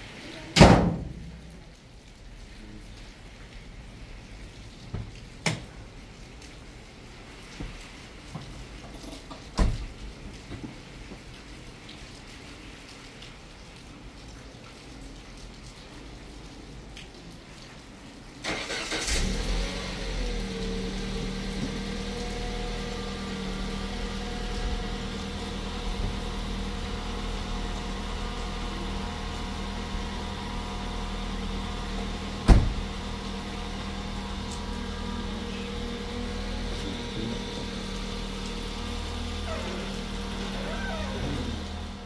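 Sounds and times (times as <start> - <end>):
car engine starting and idling: 18.4 - 42.0.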